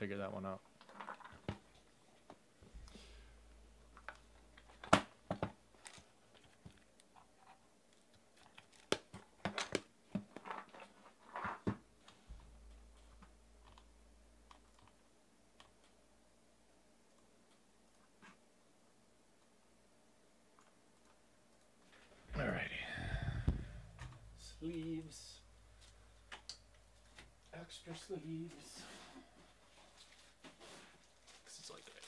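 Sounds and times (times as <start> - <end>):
objects handled on a tabletop: 3.9 - 15.0.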